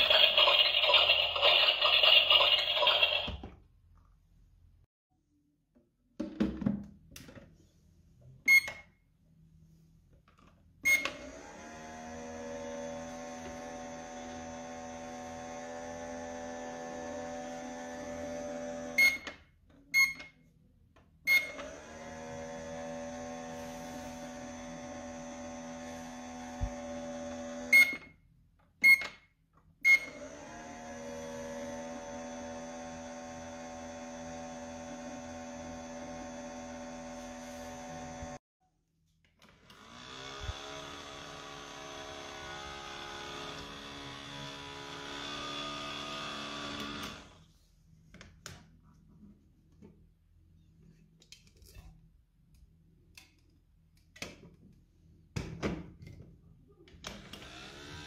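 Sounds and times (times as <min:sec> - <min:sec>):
toy blender motor: 0:00.0 - 0:03.4, 0:11.1 - 0:19.2, 0:39.5 - 0:47.4, 0:57.0 - 0:58.0
toy microwave motor hum: 0:00.0 - 0:03.4, 0:10.9 - 0:19.4, 0:39.5 - 0:47.4, 0:57.0 - 0:58.0.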